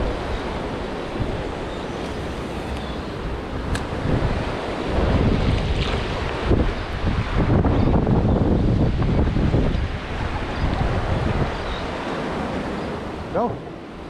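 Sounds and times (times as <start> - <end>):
wind buffeting microphone: 0.0 - 13.4
rough surf churning: 0.0 - 14.0
small click: 3.7 - 3.9.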